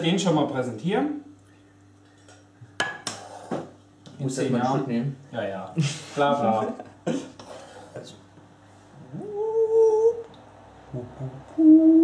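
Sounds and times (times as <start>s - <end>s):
person singing long notes: 9.0s - 12.0s.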